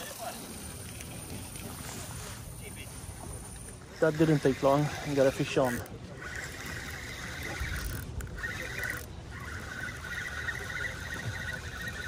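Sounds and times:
fishing reel whirring: 0.0 - 12.0.

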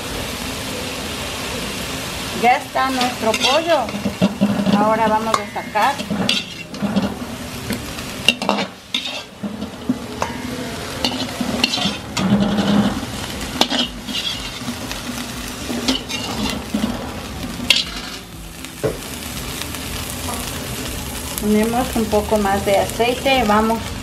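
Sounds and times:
hot oil sizzling: 0.0 - 24.0
metal skimmer scraping a wok: 2.4 - 18.3.

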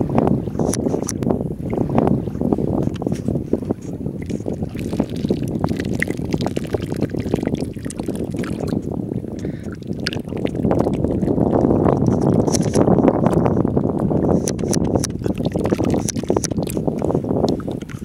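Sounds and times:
wind rumble on microphone: 0.0 - 18.0
broth trickling and splashing: 3.7 - 18.0.

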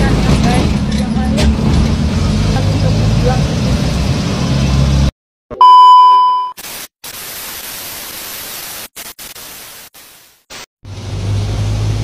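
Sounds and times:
high test-pattern beep: 5.5 - 6.6
tv static hiss: 6.6 - 10.7.

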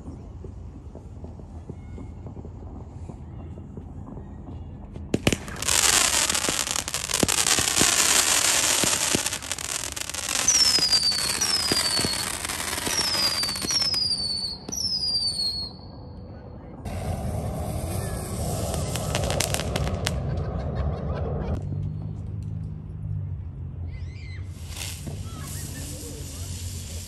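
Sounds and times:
fireworks crackling: 5.0 - 15.8, 16.9 - 20.6, 24.5 - 27.0
firework bang: 5.1 - 15.7, 16.9 - 20.4
falling firework whistles: 5.1 - 15.9, 16.9 - 20.2, 24.1 - 27.0.

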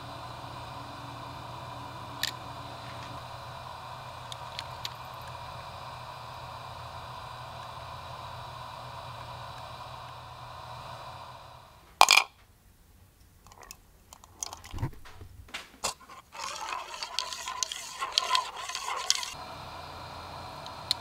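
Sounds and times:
dense crackle: 0.0 - 11.8
clicks and scrapes: 13.4 - 19.4.

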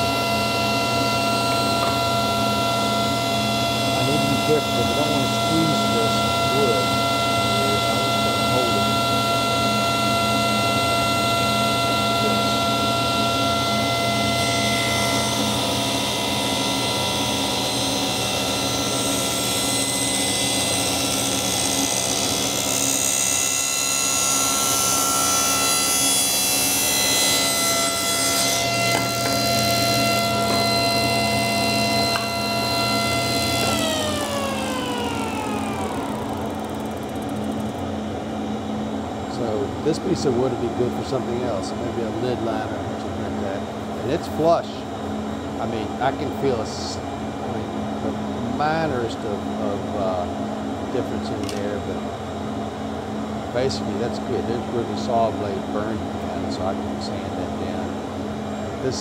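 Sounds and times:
table saw cutting wood: 0.0 - 38.1, 51.0 - 52.0
dust collector humming: 0.0 - 59.0
saw blade spinning down: 17.8 - 37.8.

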